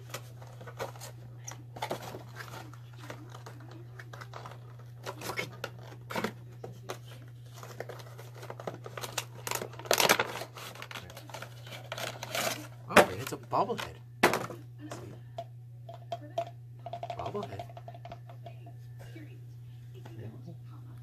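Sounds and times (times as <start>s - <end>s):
steady low hum: 0.0s - 21.0s
cardboard tearing and crinkling: 7.4s - 13.4s.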